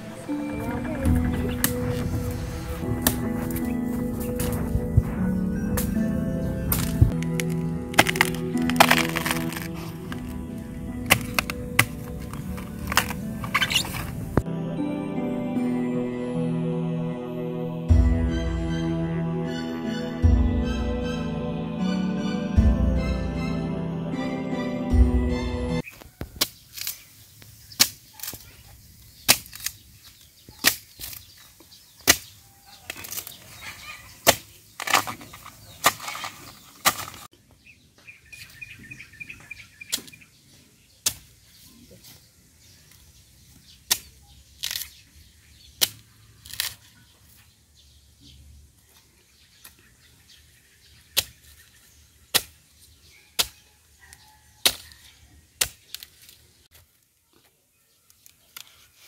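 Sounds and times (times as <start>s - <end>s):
digging tool striking ground: 2.8s - 4.7s, 6.7s - 14.4s, 34.2s - 37.3s.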